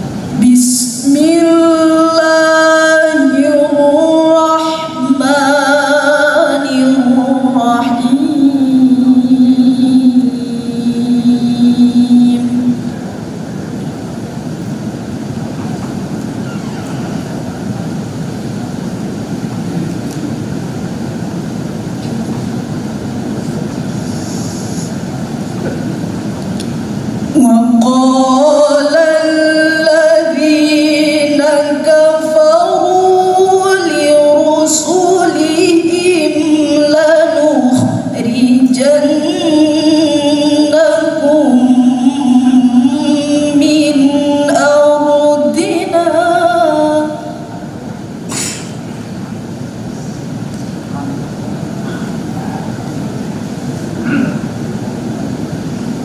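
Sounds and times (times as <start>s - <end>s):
woman reciting melodically: 0.0s - 13.5s, 26.2s - 48.2s
steady hiss: 11.4s - 27.4s.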